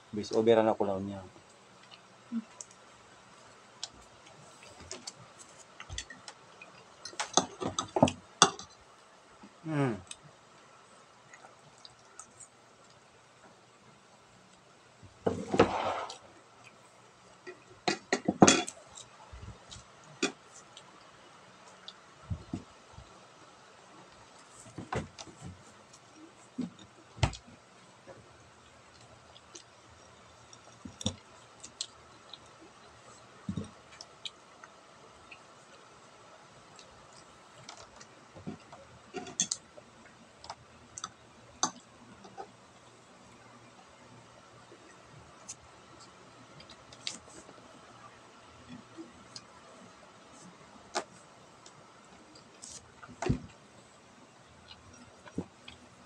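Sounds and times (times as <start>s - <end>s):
plate scraping on table: 15.3s - 16.2s.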